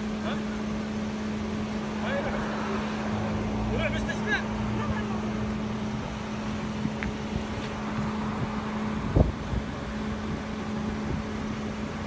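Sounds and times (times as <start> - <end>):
roadside vehicle noise: 0.0 - 12.0
wind on microphone: 5.9 - 12.0.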